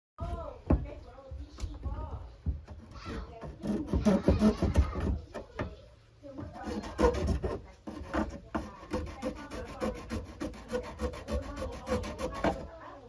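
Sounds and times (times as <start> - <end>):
hand sanding pipe: 3.4 - 5.0, 6.4 - 12.9.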